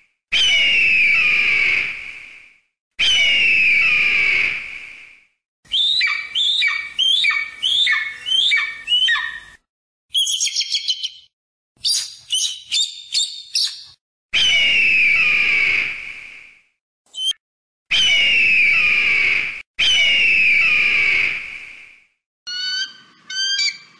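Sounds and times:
bird descending scream: 0.3 - 2.0, 3.0 - 4.6, 5.7 - 9.6, 14.4 - 15.9, 19.8 - 21.3, 22.5 - 23.9
bird piping calls: 5.7 - 14.6, 22.5 - 23.9
bird trilling: 5.7 - 14.7, 22.5 - 23.9.

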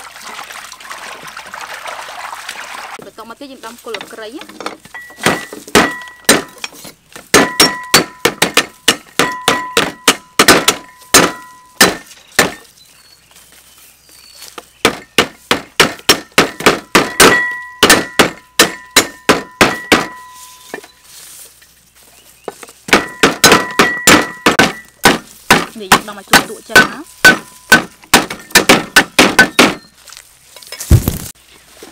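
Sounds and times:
cleavers chopping on wooden boards: 3.9 - 12.7, 14.5 - 20.4, 22.4 - 29.9
cleaver blades ringing: 5.0 - 12.1, 17.1 - 21.0.

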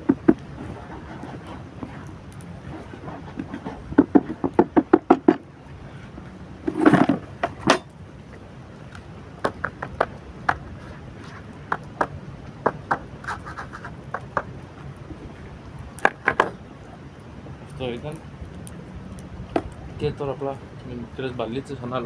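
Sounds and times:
scraping rustle: 0.0 - 4.6, 5.8 - 7.8, 10.5 - 11.9, 12.9 - 16.6
riddle tapping and knocking: 3.5 - 5.4, 11.7 - 13.1.

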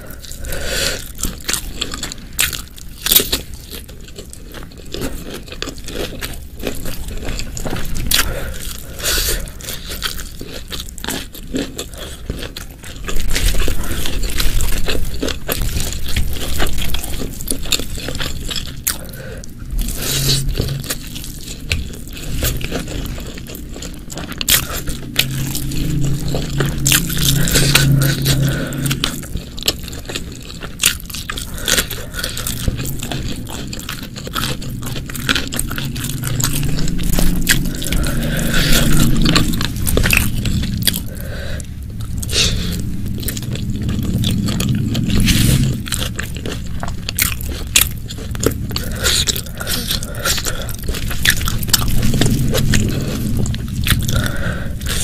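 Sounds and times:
close-miked chewing: 0.0 - 55.0
low steady hum: 0.0 - 55.0.

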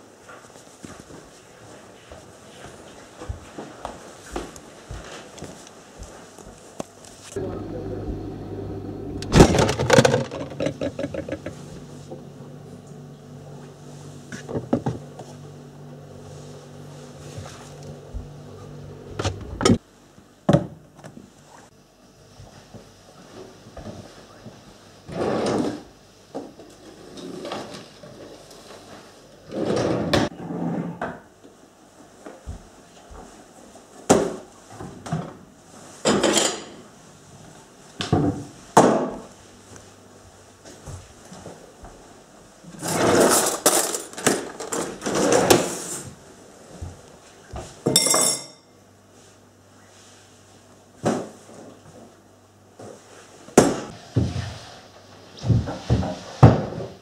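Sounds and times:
kitchen clattering and knocking: 9.3 - 11.7
ceramic bowl clinking on table: 47.9 - 48.7.

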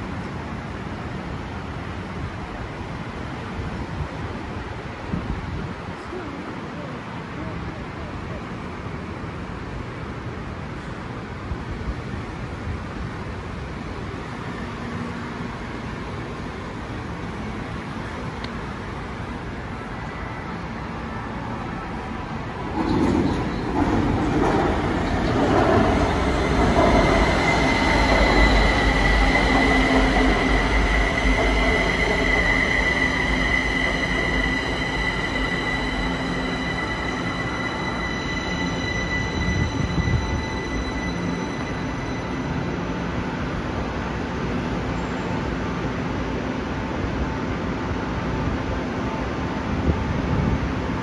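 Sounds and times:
train wheels rumbling on rails: 21.6 - 44.9
high whine: 23.3 - 43.9.

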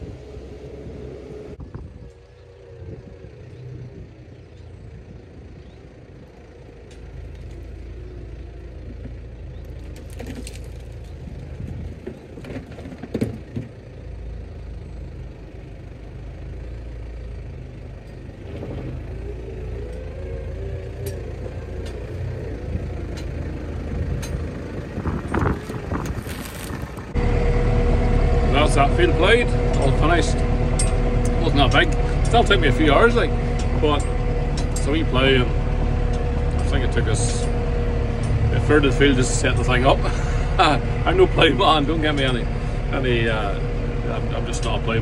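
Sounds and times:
tractor diesel engine: 0.0 - 45.0.

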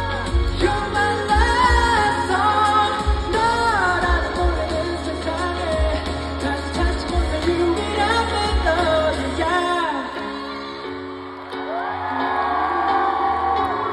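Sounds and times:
band with bass and drums: 0.0 - 10.6
male singer: 0.0 - 11.0
held keyboard chords: 0.0 - 13.9.

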